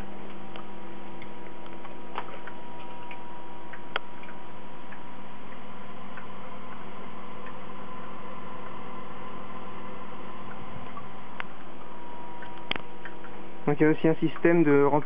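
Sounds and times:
electrical hum and hiss: 0.0s - 15.0s
faint ticks: 0.2s - 7.7s, 10.4s - 13.5s.

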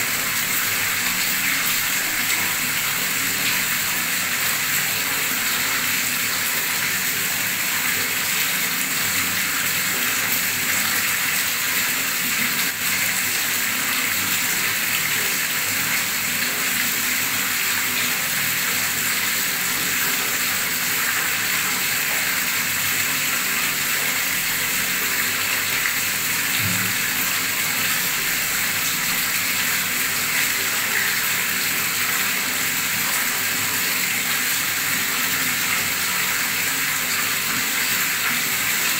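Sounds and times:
tap water gushing into water: 0.0s - 38.9s.

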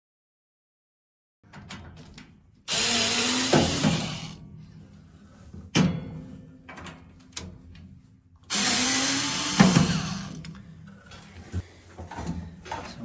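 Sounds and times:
cordless drill motor running: 2.7s - 4.4s, 8.5s - 10.4s.

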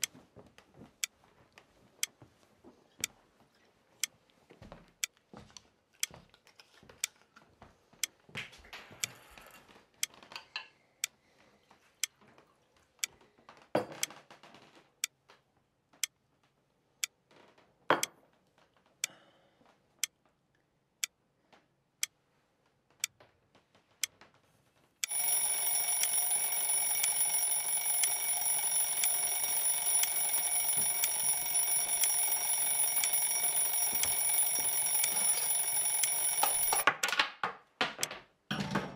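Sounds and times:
alarm clock ticking: 25.0s - 36.9s
alarm bell ringing: 25.1s - 36.8s.

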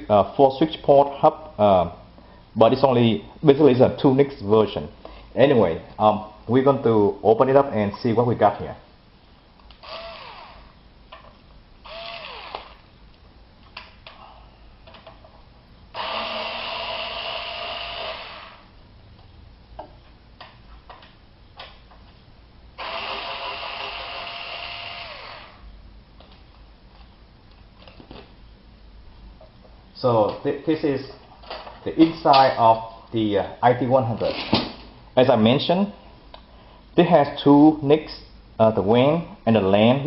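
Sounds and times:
cordless screwdriver spinning: 9.8s - 10.6s, 11.8s - 12.8s, 22.8s - 25.6s.

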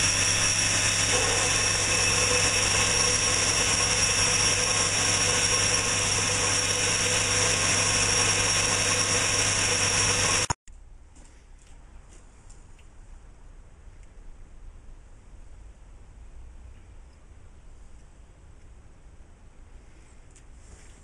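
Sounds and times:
boring tool cutting aluminium: 0.0s - 10.6s
metal lathe humming with whine: 0.0s - 10.6s.

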